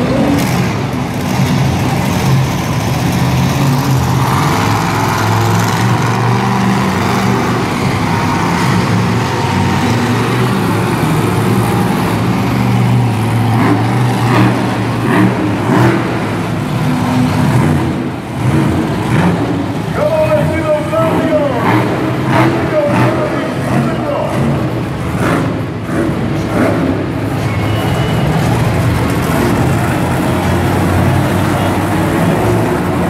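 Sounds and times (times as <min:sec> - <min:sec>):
monster truck engines revving: 0:00.0 - 0:33.0.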